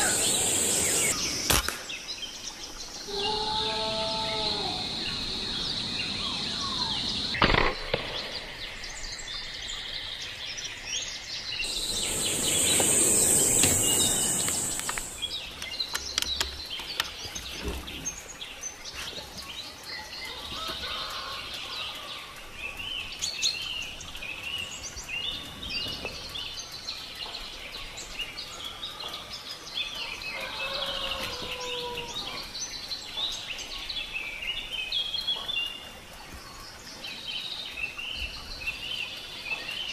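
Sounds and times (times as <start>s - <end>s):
loud hissing rush: 0.0s - 1.5s, 3.1s - 7.4s, 11.6s - 15.4s
small birds chirping: 0.0s - 7.5s, 8.2s - 20.4s.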